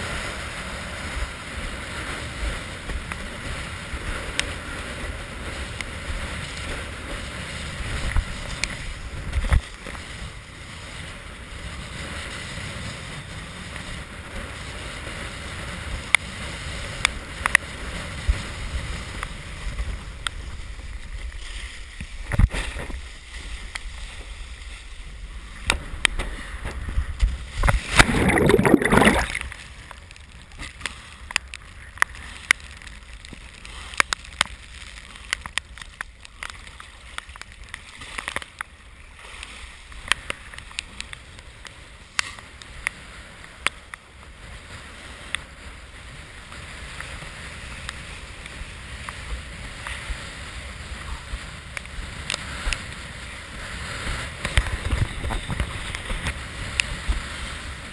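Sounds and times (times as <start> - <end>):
water rushing and splashing: 0.0 - 14.2, 15.1 - 57.9
wind buffeting camera: 0.0 - 30.8, 47.9 - 57.9.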